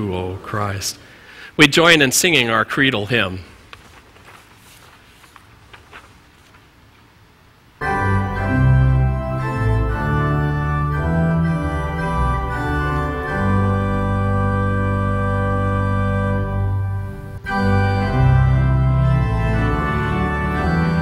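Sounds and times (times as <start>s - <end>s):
organ playing a hymn: 7.8s - 21.0s.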